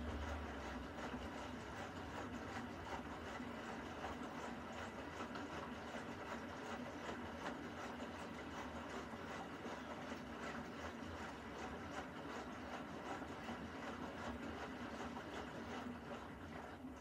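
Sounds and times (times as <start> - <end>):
washing machine hum: 0.0 - 17.0
water sloshing in washing machine: 0.0 - 17.0.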